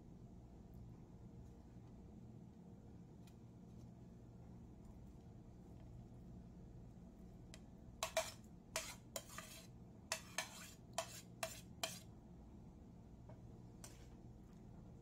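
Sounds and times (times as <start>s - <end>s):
metal spoon scraping ceramic plate: 8.0s - 12.1s.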